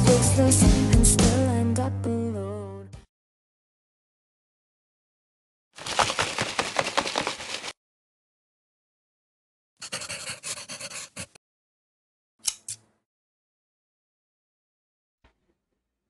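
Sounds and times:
pen scribbling on paper: 9.8 - 11.4.

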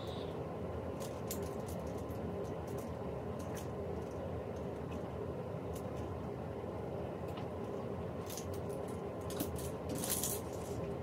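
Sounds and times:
low background hum: 0.0 - 11.0
clothes hangers rustling and clicking: 1.0 - 4.2, 8.2 - 10.8.

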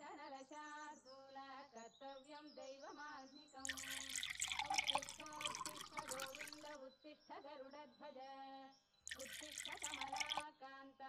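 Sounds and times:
milk splashing into a mug: 3.7 - 6.8, 9.1 - 10.4.

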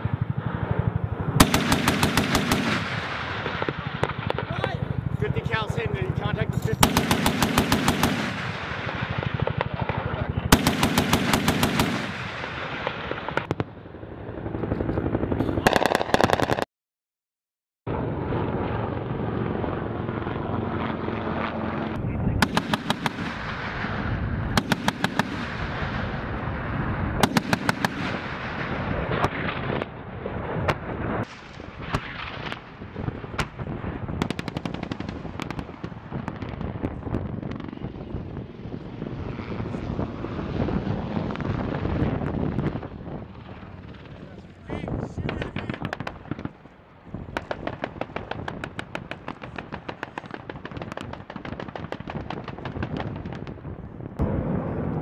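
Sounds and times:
gatling cannon firing bursts: 1.4 - 13.6, 15.6 - 16.6, 22.4 - 26.3, 27.2 - 36.8, 45.3 - 46.7, 47.3 - 53.4
steady rumble: 17.9 - 55.0
single shots and impacts: 24.6 - 25.8, 27.2 - 28.5.

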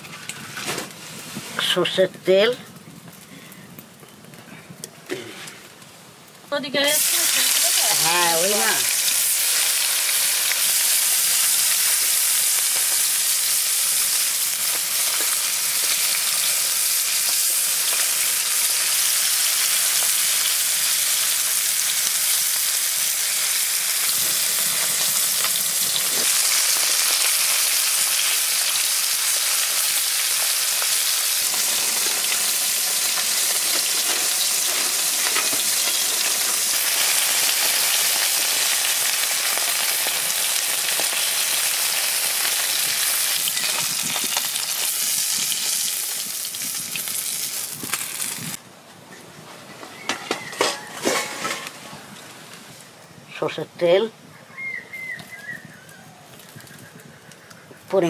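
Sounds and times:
fish sizzling in oil: 6.5 - 48.6.

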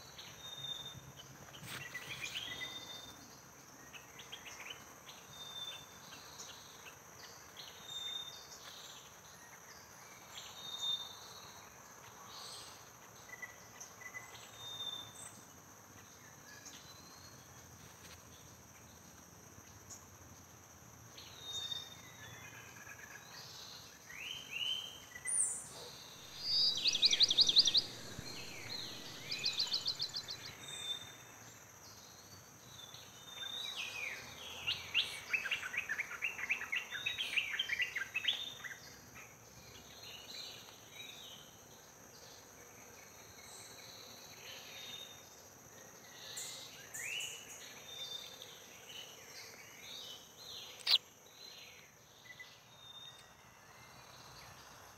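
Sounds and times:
birds chirping: 25.1 - 31.3, 50.7 - 51.0
high-pitched insect drone: 26.1 - 32.4.

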